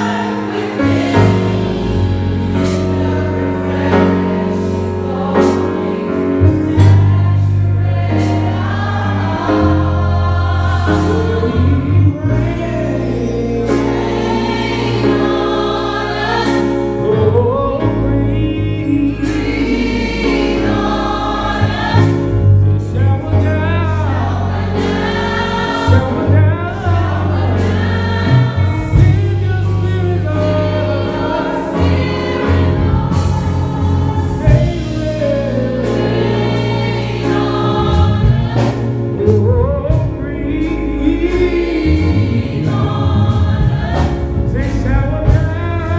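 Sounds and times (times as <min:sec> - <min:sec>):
band with guitar and keyboard: 0:00.0 - 0:45.9
gospel choir singing: 0:00.0 - 0:45.9
steady bass: 0:00.0 - 0:45.9
man singing lead: 0:17.0 - 0:20.5, 0:39.2 - 0:42.6, 0:44.5 - 0:45.9.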